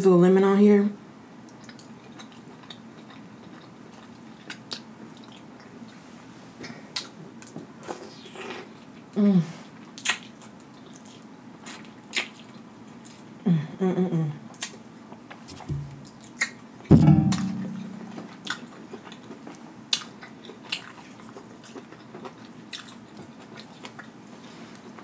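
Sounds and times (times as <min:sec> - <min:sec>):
close chewing with mouth clicks: 0:01.4 - 0:06.0, 0:06.9 - 0:13.4, 0:14.5 - 0:16.6, 0:18.5 - 0:25.0.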